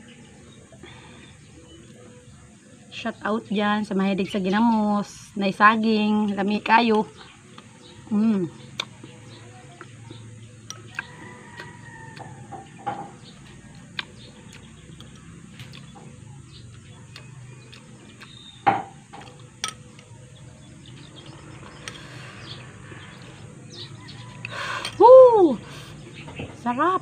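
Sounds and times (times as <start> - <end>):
soft chewing: 8.6 - 25.0.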